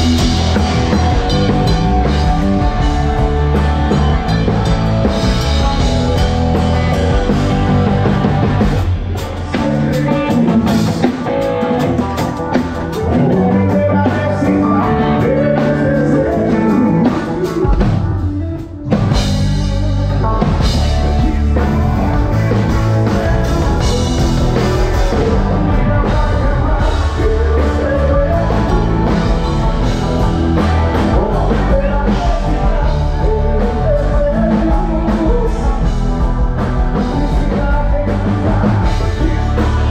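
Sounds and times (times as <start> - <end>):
live band playing: 0.0 - 39.9
person singing: 0.0 - 39.9.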